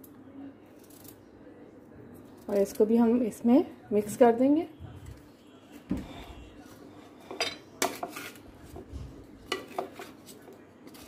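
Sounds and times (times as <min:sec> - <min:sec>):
spoon scraping earthenware bowl: 0:06.0 - 0:08.4.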